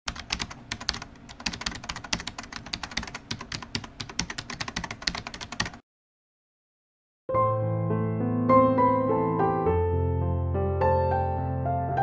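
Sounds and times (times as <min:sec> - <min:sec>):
rapid keyboard typing: 0:00.1 - 0:05.8.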